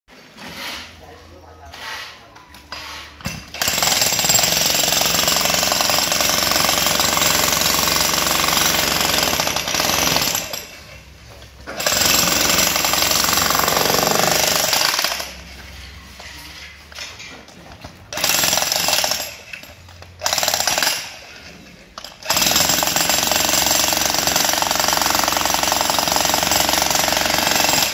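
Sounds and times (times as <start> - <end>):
demolition hammer chiselling concrete: 2.8 - 10.8, 11.7 - 15.3, 18.2 - 19.4, 20.2 - 21.2, 22.1 - 27.9.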